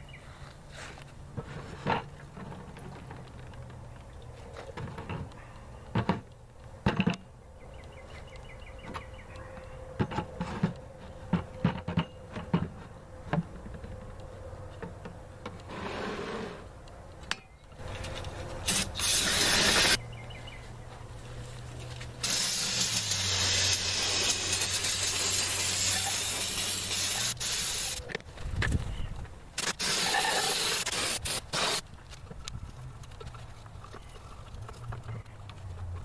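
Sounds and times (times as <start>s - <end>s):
aerosol spray hissing: 22.2s - 28.0s, 29.6s - 31.8s.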